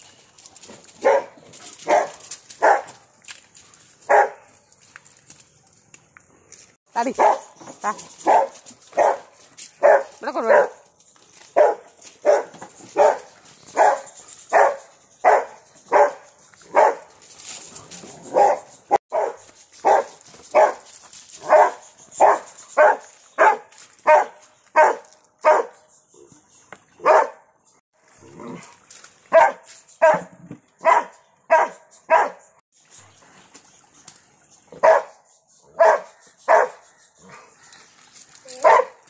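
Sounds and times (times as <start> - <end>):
dog barking: 1.0 - 3.0, 4.1 - 4.5, 7.2 - 7.5, 8.2 - 10.8, 11.6 - 17.0, 18.3 - 20.8, 21.4 - 25.8, 27.0 - 27.4, 29.3 - 32.4, 34.8 - 35.1, 35.8 - 37.5, 38.6 - 39.0.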